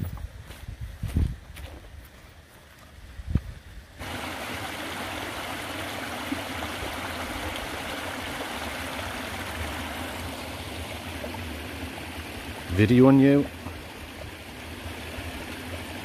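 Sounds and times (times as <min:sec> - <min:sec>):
stream of running water: 0:03.6 - 0:16.0.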